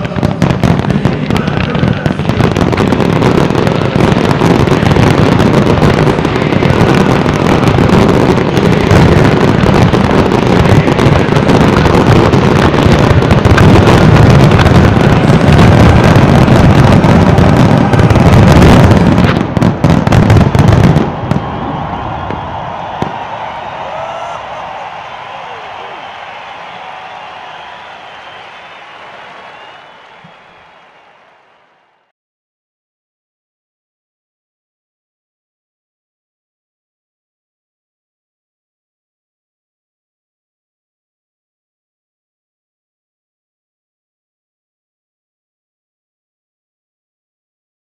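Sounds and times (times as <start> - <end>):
deep fireworks booms: 0.0 - 31.4.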